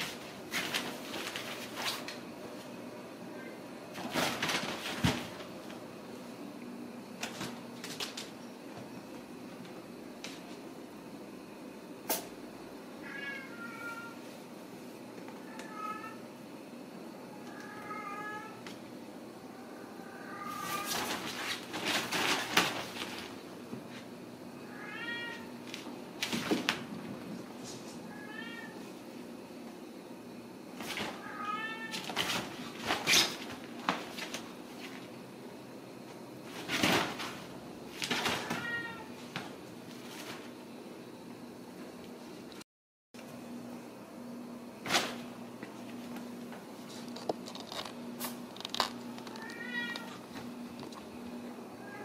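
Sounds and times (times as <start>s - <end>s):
kitten scrambling bumps and scrapes: 20.7s - 23.3s, 36.5s - 40.5s
kitten meowing: 49.3s - 50.1s.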